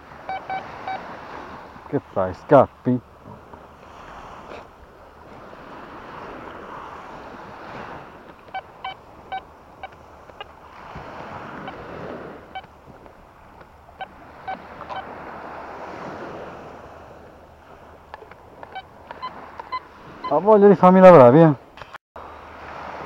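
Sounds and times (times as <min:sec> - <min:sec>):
surf washing in: 0:00.0 - 0:21.6, 0:22.2 - 0:23.0
metal detector beeps: 0:00.2 - 0:01.1, 0:08.3 - 0:10.5, 0:11.4 - 0:12.8, 0:13.9 - 0:15.1, 0:18.1 - 0:20.4.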